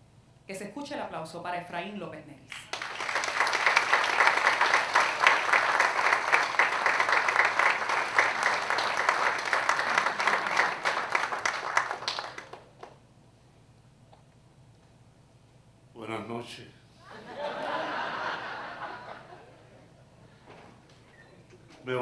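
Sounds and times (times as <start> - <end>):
audience applause: 2.7 - 13.0.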